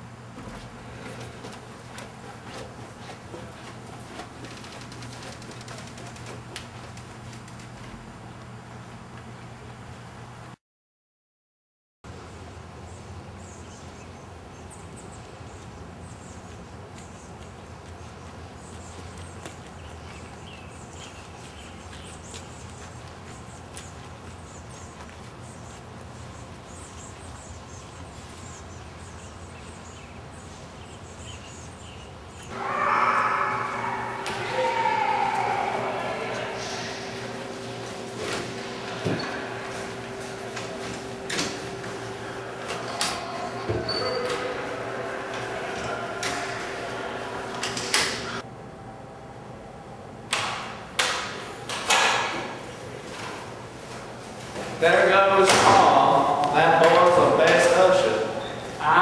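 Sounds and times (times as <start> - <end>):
low hum: 32.5 - 50.2.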